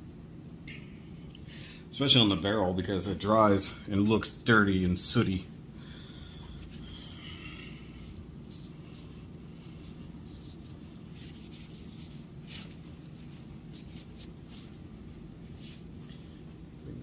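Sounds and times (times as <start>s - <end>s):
steady low hum: 0.0s - 17.0s
tissue rubbing on plastic: 7.8s - 16.0s.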